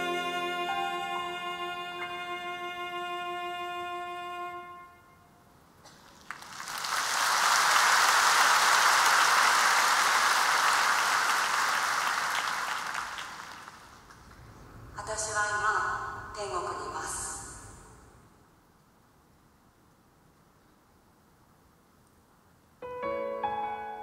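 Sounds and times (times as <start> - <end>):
string-backed ballad chord: 0.0 - 3.7, 22.8 - 24.0
concert audience applause: 5.9 - 14.4.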